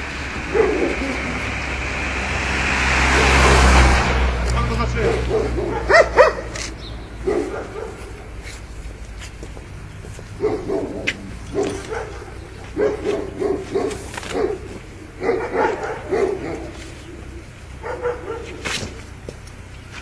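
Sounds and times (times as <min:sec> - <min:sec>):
dog barking: 0:00.5 - 0:01.3, 0:05.1 - 0:08.3, 0:10.4 - 0:19.0.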